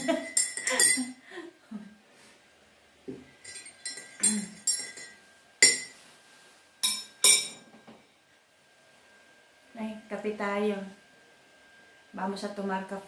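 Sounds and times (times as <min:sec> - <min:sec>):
teaspoon clinking against mug: 0:00.2 - 0:01.1, 0:03.4 - 0:05.9.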